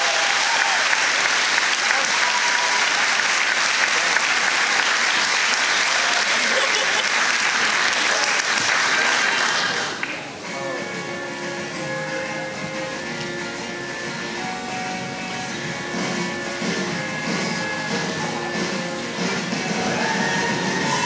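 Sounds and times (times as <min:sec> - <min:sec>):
large audience applauding: 0:00.0 - 0:10.4, 0:16.0 - 0:21.0
voices: 0:15.2 - 0:21.0.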